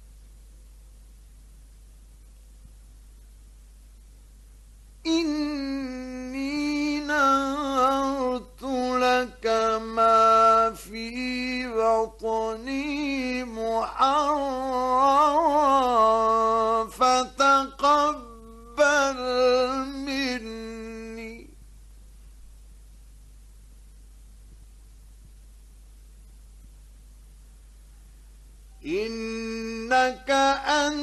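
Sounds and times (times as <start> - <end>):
man chanting melodic recitation: 5.1 - 21.5, 28.8 - 31.0.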